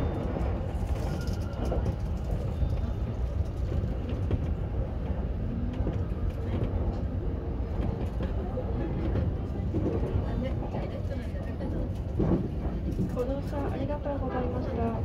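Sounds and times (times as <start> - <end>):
wheels rumbling on rails: 0.0 - 15.0.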